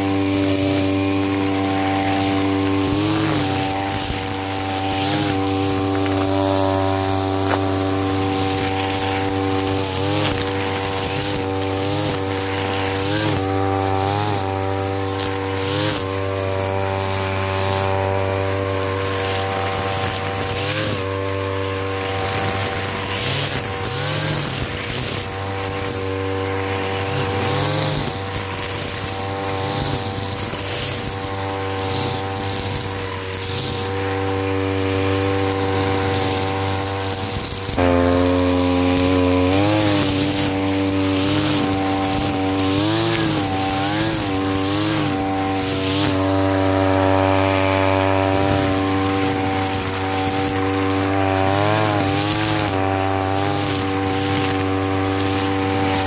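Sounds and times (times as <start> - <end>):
brush cutter engine cutting grass: 0.0 - 56.0.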